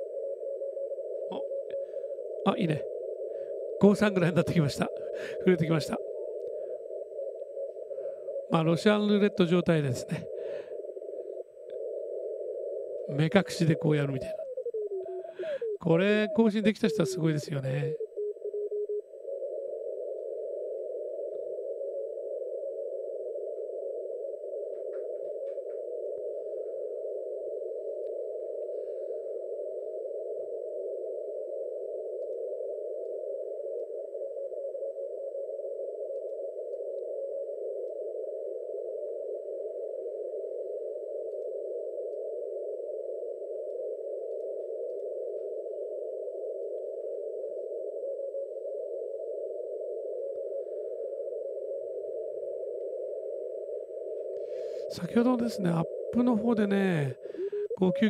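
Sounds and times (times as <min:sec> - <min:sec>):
radio band noise hiss: 0:01.3 - 0:03.0, 0:03.6 - 0:06.3, 0:07.1 - 0:18.0, 0:52.0 - 0:58.0.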